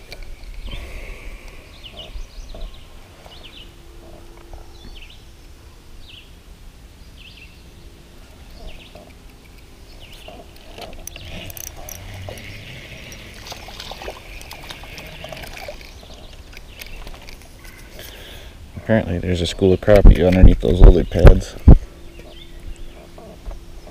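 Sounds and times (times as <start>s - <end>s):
water splashing and dripping: 13.0s - 17.4s.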